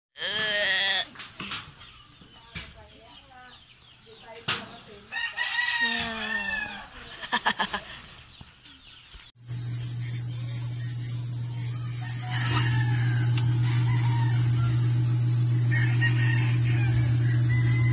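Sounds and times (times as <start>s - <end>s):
rooster crowing: 5.1s - 7.0s, 11.6s - 17.9s
incubator fan humming: 9.4s - 17.9s.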